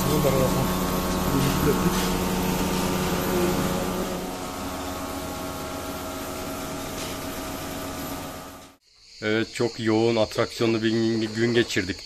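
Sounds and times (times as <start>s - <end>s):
milking machine humming: 0.0s - 8.8s.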